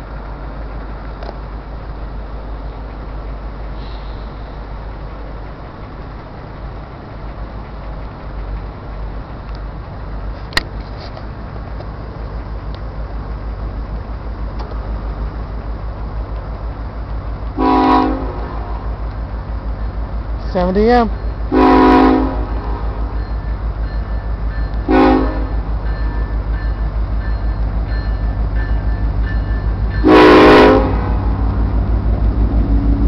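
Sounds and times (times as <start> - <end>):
diesel locomotive rumbling: 0.0 - 33.0
train air horn blast: 17.6 - 18.9, 21.5 - 23.0, 24.9 - 25.6, 30.0 - 31.2.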